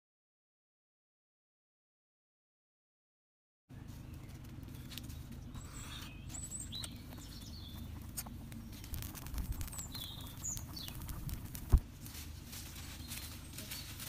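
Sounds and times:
high bird chirps: 0:03.9 - 0:11.3
pot boiling: 0:06.6 - 0:11.9
wood fire crackling: 0:06.6 - 0:14.0.

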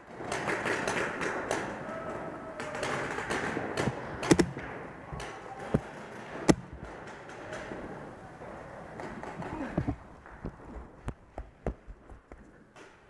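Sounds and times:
paintball markers popping: 0:02.7 - 0:07.2.

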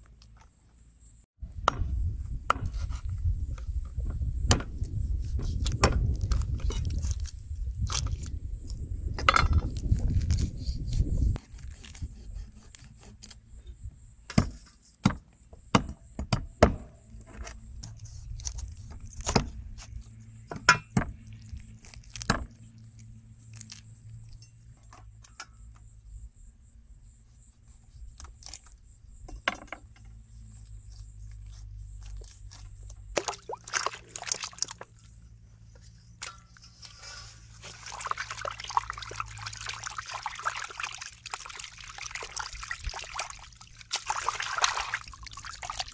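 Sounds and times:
water splashing in metal basin: 0:33.2 - 0:35.1, 0:37.4 - 0:45.9.

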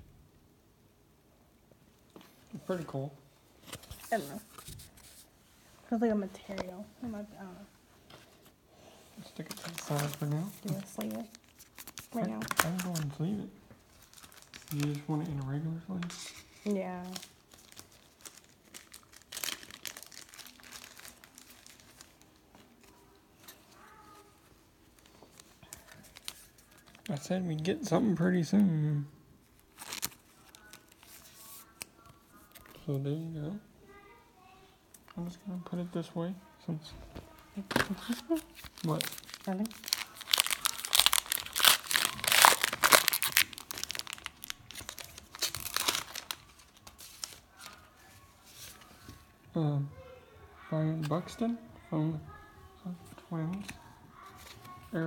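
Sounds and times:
plastic and foil wrappers crinkling: 0:08.1 - 0:28.6, 0:29.4 - 0:32.9, 0:37.2 - 0:49.3, 0:53.1 - 0:55.0.

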